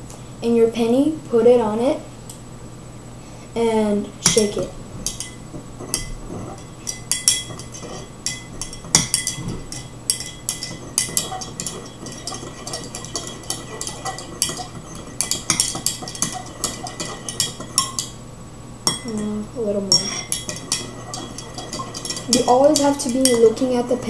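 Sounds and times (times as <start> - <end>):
tweezers clinking against glass: 6.8 - 18.2, 18.8 - 19.3, 19.9 - 23.5.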